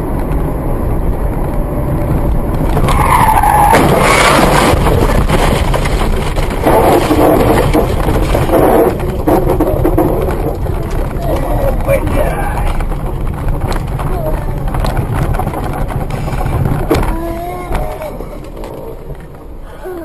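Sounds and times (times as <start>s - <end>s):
rough tyre and engine noise: 0.0s - 20.0s
tyre squeal: 2.8s - 4.6s.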